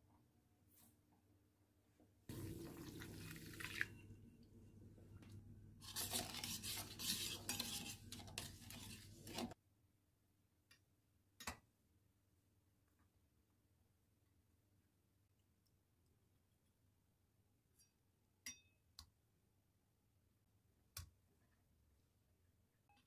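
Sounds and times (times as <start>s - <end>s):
water pouring into metal bowl: 2.3s - 4.2s
metal spoon stirring in bowl: 5.8s - 9.6s.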